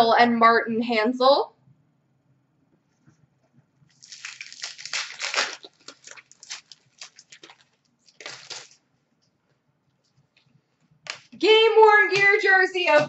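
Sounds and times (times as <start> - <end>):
wrapper crinkling and rustling: 3.9 - 8.8.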